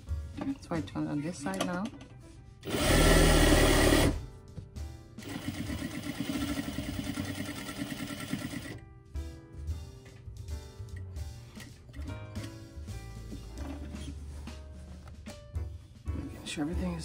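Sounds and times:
sewing machine stitching: 2.6s - 4.2s, 5.2s - 8.8s.

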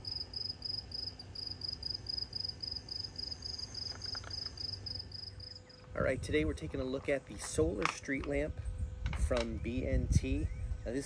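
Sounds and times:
cricket chirping: 0.0s - 5.8s
low background rumble: 0.0s - 11.0s.

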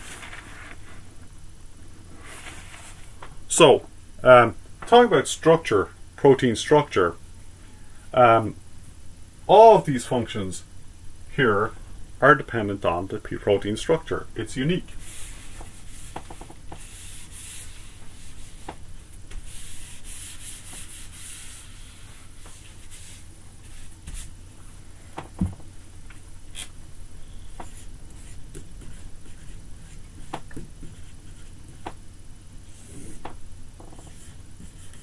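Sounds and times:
eraser rubbing on whiteboard: 15.0s - 24.3s, 33.9s - 35.0s
marker scratching and tapping: 15.4s - 17.7s, 18.4s - 21.1s, 27.6s - 32.0s, 33.0s - 35.0s.

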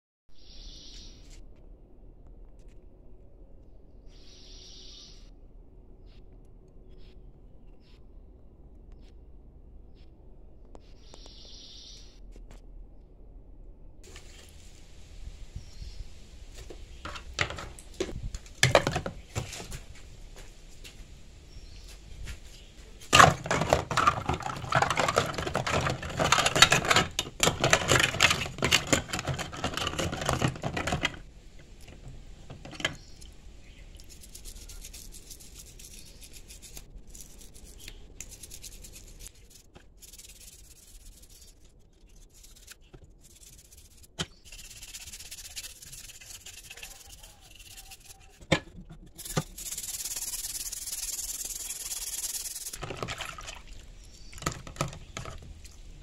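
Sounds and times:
plastic parts knocking together: 17.1s - 19.5s, 23.1s - 33.0s
toothbrush scrubbing plastic: 23.2s - 33.2s, 33.9s - 53.2s.

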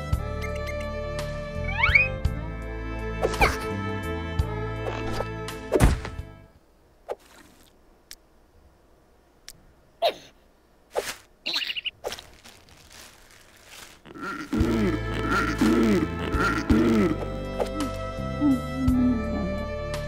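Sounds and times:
background music: 0.0s - 6.5s, 14.2s - 20.0s
cartoon sound effects: 1.6s - 2.1s.

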